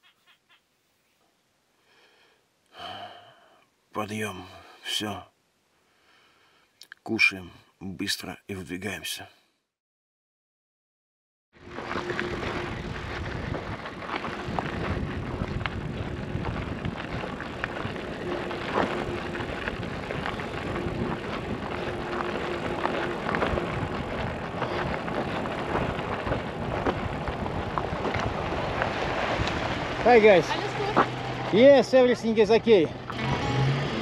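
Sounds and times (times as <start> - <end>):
bicycle tyres on gravel: 11.6 - 33.7.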